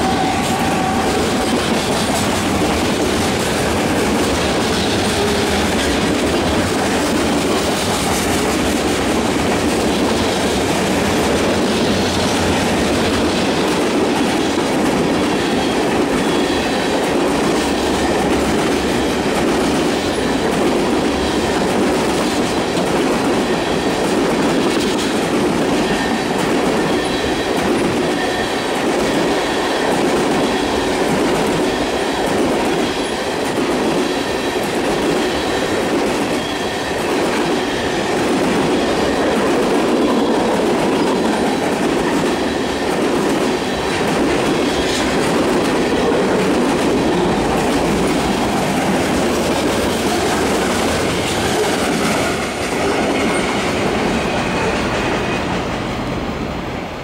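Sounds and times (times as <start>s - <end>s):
high wheel squeal: 0.0s - 7.0s, 15.3s - 17.0s, 25.8s - 33.4s, 34.0s - 43.9s
train wheels rumbling on rails: 0.0s - 57.0s.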